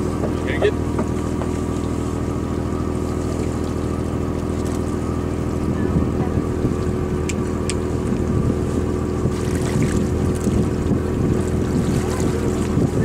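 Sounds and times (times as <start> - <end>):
boat engine humming: 0.0 - 13.0
water splashing: 0.0 - 13.0
wind on microphone: 5.5 - 13.0.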